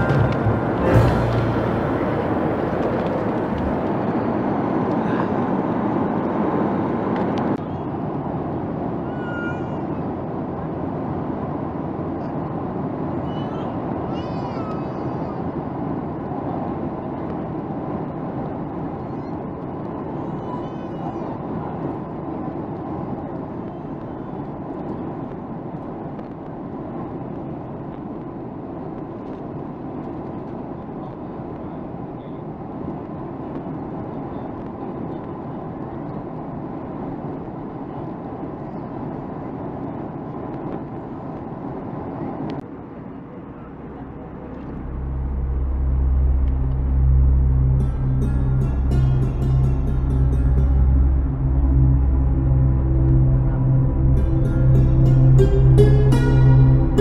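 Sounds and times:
jet airliner cabin noise: 0.0 - 57.0
faint high-pitched squeaks: 19.0 - 21.4.

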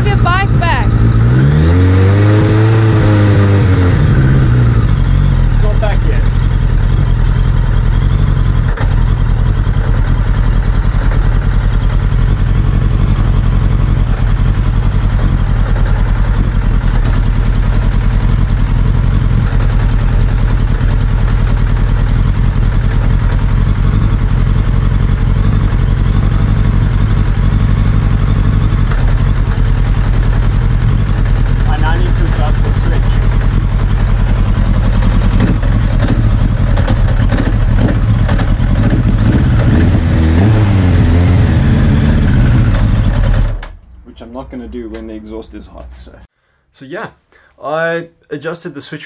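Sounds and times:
motorcycle engine idling: 0.0 - 43.8.

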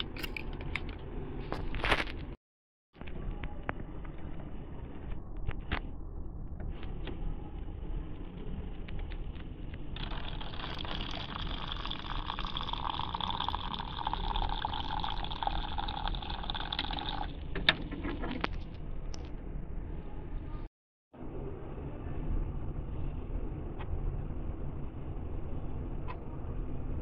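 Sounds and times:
low hum: 3.0 - 27.0
hot water pouring into coffee bag: 10.0 - 17.3.

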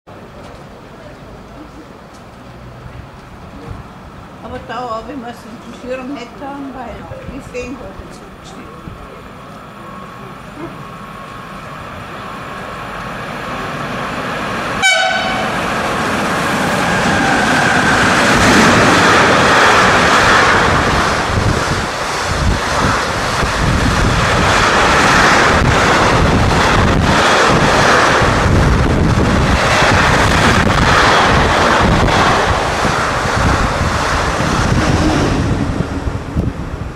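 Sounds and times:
freight train passing: 0.1 - 36.9
train horn blast: 14.8 - 15.7.

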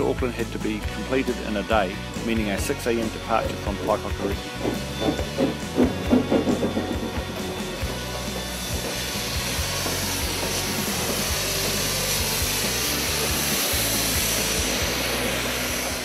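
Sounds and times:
steam hissing: 0.0 - 16.0
steam locomotive exhaust chuffs: 0.0 - 16.0
rumble of rolling wheels: 3.4 - 12.0.

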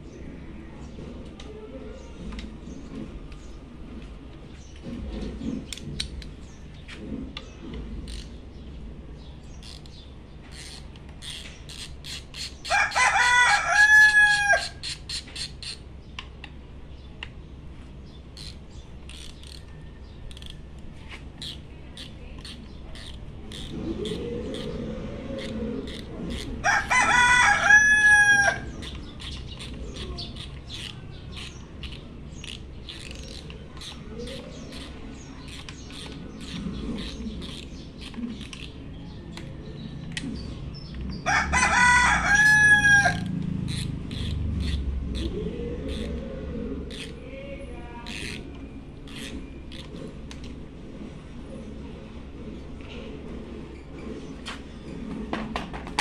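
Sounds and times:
socket wrench clicking: 8.0 - 8.4, 9.6 - 12.8, 14.8 - 15.8, 18.4 - 24.7, 25.4 - 26.6, 28.8 - 40.2, 43.2 - 45.3, 45.9 - 46.2, 46.9 - 47.2, 48.0 - 50.5
rooster crowing: 12.7 - 14.8, 26.6 - 28.7, 41.2 - 43.4.

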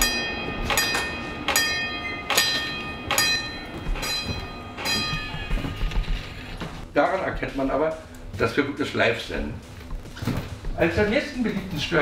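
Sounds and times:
doorbell chimes: 0.0 - 6.2.

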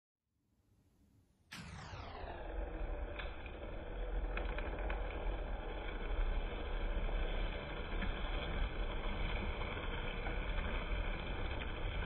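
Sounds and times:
model train motors whirring: 2.8 - 12.0.

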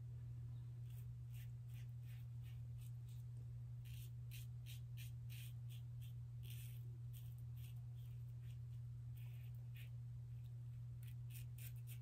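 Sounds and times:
steady low hum: 0.0 - 12.0
razor scraping stubble: 0.9 - 3.2, 3.8 - 10.0, 11.0 - 12.0.

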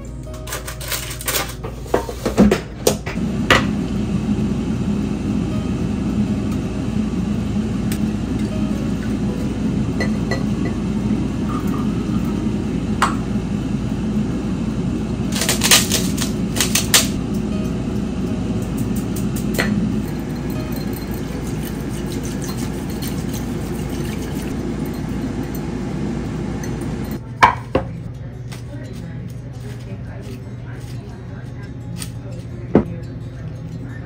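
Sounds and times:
air fryer fan hum: 0.0 - 28.8
kitchenware clicking and clinking: 0.3 - 3.2, 18.7 - 25.8, 26.6 - 34.0.

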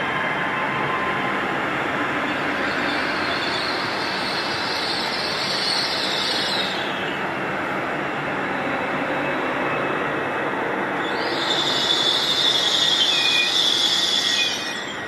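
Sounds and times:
train wheels on rails: 0.0 - 15.0.

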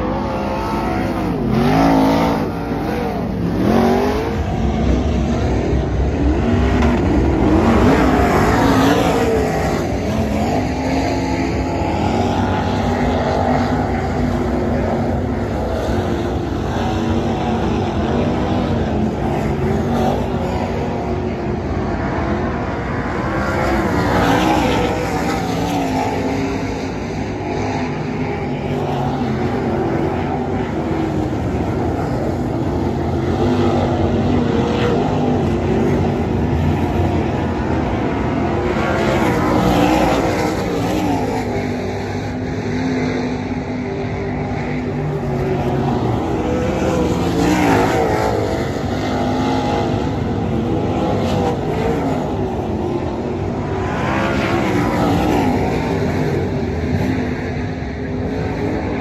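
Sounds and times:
race car engines on dirt track: 0.0 - 59.0.

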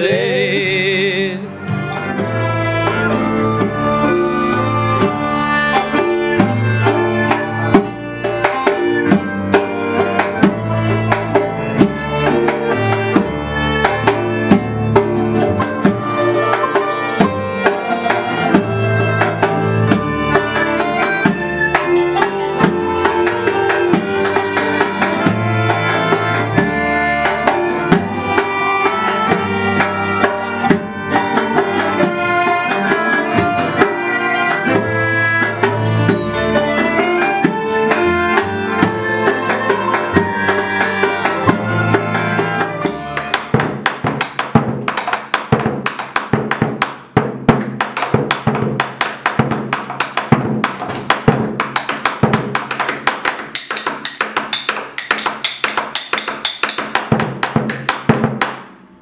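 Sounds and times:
plucked and bowed strings: 0.0 - 58.1
drum beaten with two sticks: 1.6 - 58.8.

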